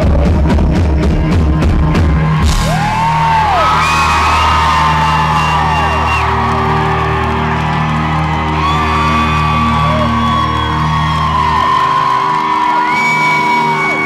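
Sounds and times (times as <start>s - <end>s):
live rock band: 0.0s - 14.0s
audience whooping and screaming: 1.2s - 14.0s.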